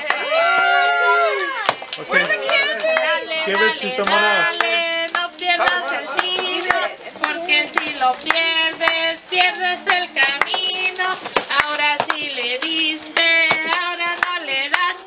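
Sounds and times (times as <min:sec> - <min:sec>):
hand claps: 0:00.0 - 0:15.0
voices singing together: 0:02.1 - 0:15.0.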